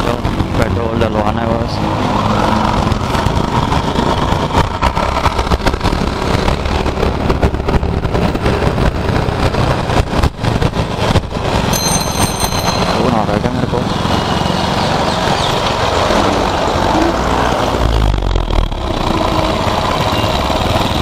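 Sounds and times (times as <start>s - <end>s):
street traffic: 0.0s - 21.0s
scooter engine running: 10.5s - 16.7s.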